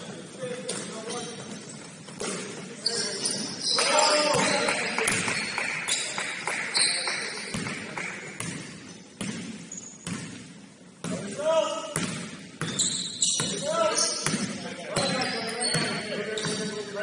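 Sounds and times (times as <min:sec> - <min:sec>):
voices in background: 0:00.0 - 0:08.4
basketball bouncing on gym floor: 0:04.2 - 0:05.6, 0:07.5 - 0:11.2, 0:12.0 - 0:13.6, 0:14.2 - 0:16.7.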